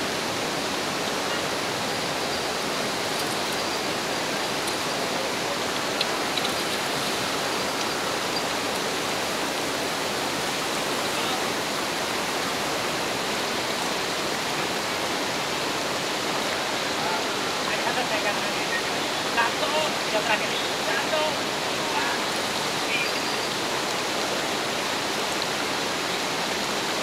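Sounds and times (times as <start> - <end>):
river water flowing: 0.0 - 27.0.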